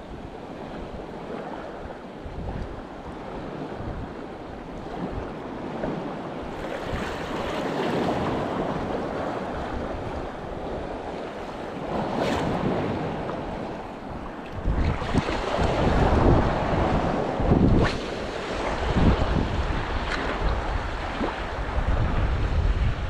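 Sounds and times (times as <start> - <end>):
wind buffeting microphone: 0.0 - 23.0
sea washing against rocks: 4.9 - 23.0.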